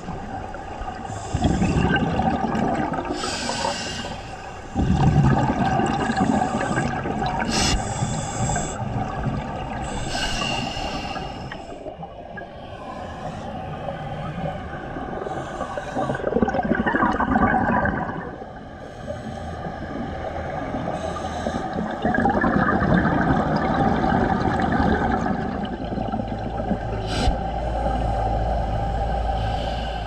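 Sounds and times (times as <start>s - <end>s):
gurgling regulator bubbles: 0.0s - 30.0s
low rumble: 21.7s - 30.0s.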